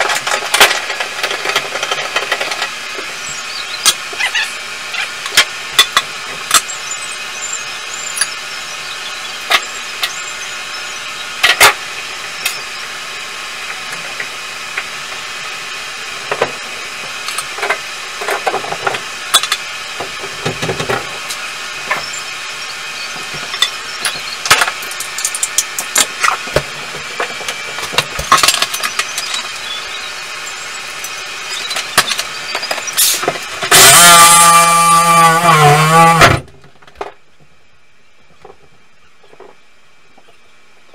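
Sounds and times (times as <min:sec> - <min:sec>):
knocks clicks and scrapes: 0:00.0 - 0:06.8, 0:16.2 - 0:22.2, 0:23.1 - 0:29.7, 0:31.0 - 0:37.2
power tool running: 0:00.0 - 0:36.6
steady background hum: 0:00.0 - 0:40.9.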